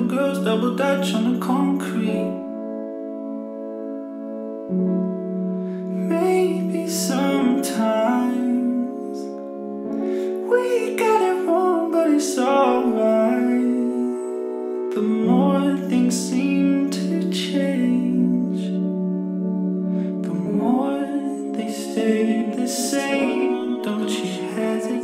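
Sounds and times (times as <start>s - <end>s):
background music with held chords: 0.0s - 25.0s.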